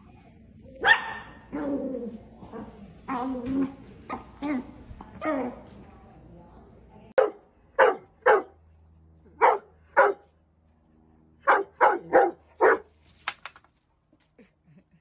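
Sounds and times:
dog barking: 0.8s - 1.6s, 7.2s - 8.6s, 9.4s - 10.2s, 11.4s - 12.9s.

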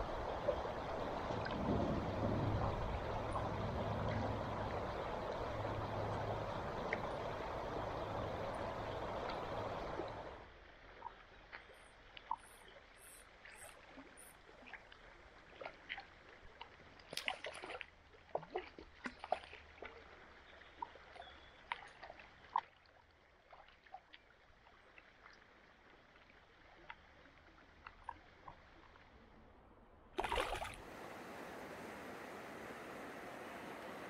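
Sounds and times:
river current flowing: 0.0s - 22.6s, 30.2s - 34.0s
fish splashing in water: 30.2s - 30.9s.

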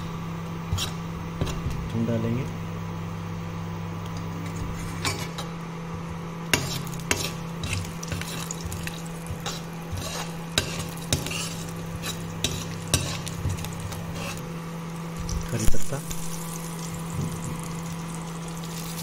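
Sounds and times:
low electrical hum: 0.0s - 19.0s
light sizzle of oil: 6.5s - 19.0s
spoon scraping a pan: 6.6s - 14.5s.

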